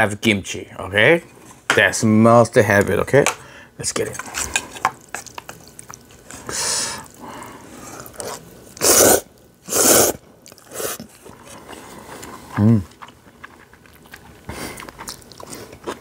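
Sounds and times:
chewing: 4.4s - 9.5s, 10.4s - 16.0s
noodle slurping: 5.6s - 16.0s.

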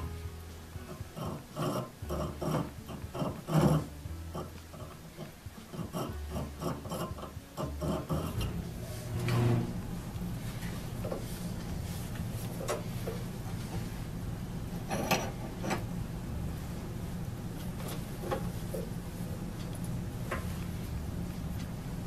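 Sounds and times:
needle file rasping on steel: 1.1s - 8.5s.

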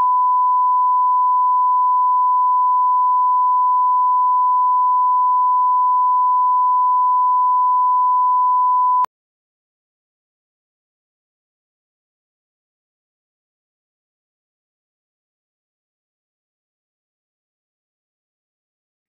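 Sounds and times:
high-pitched test tone beep: 0.0s - 9.1s.

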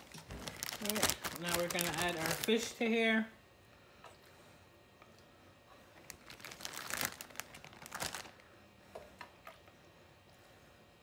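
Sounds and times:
plastic bag crinkling: 0.0s - 2.9s, 6.0s - 8.4s.

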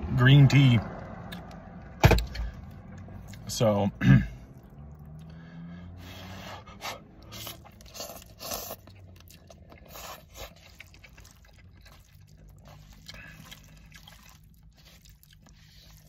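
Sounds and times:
person chewing: 2.6s - 3.5s, 4.4s - 16.0s
person slurping noodles: 6.0s - 16.0s.

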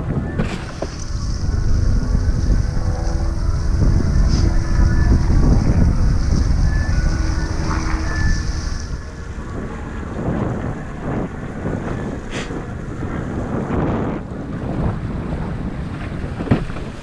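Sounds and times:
wind buffeting microphone: 0.0s - 17.0s
water rushing and splashing: 0.4s - 10.3s.

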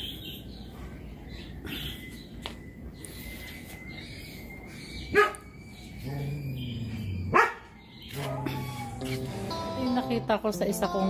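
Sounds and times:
dog barking loudly: 7.3s - 7.7s.

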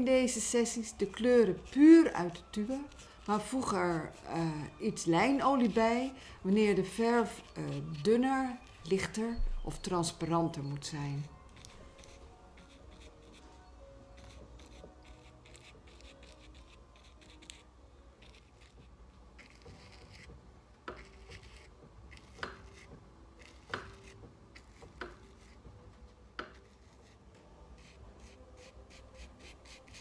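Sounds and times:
paintbrush rubbing on canvas: 11.5s - 25.7s, 27.8s - 30.0s.

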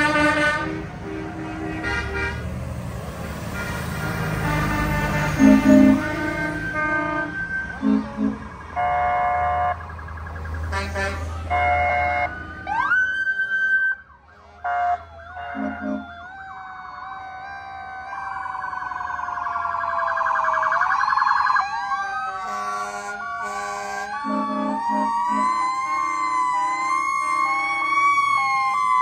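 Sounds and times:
horn blasts: 0.0s - 2.6s, 3.4s - 9.8s, 10.7s - 12.6s, 14.4s - 16.1s, 22.5s - 26.9s
emergency sirens wailing: 0.0s - 29.0s.

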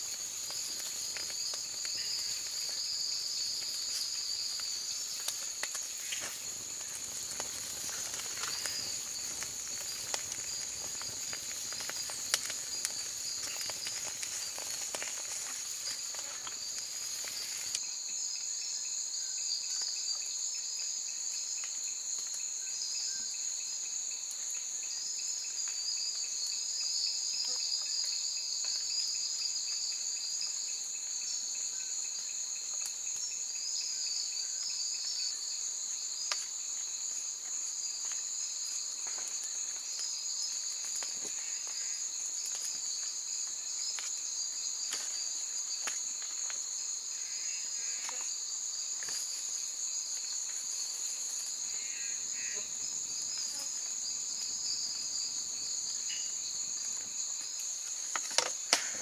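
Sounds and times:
insects shrilling: 0.0s - 17.8s
pulsing insect trill: 0.0s - 17.8s, 46.7s - 58.7s.

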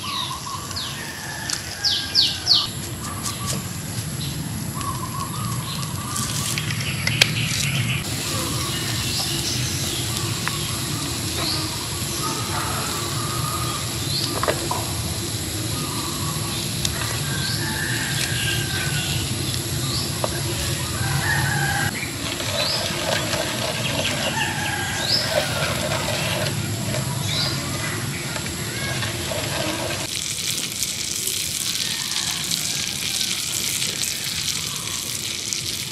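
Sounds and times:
birds chirping: 0.0s - 30.1s
drawn-out bird calls: 15.6s - 30.1s.

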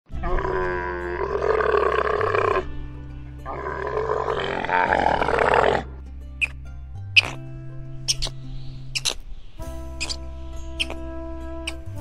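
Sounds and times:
long animal calls: 0.1s - 2.7s, 3.4s - 6.6s, 7.2s - 7.4s, 8.1s - 9.2s, 10.0s - 10.2s, 10.8s - 11.0s.

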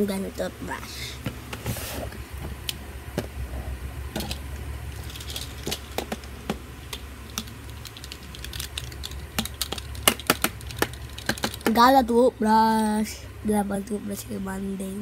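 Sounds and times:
steady low hum: 0.0s - 15.0s
small hard objects clicking: 4.2s - 11.8s.

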